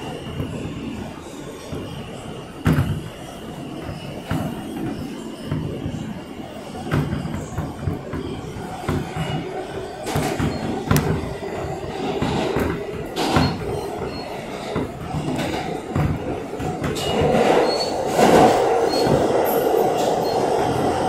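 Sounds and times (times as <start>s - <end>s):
subway train rumble: 0.0s - 21.0s.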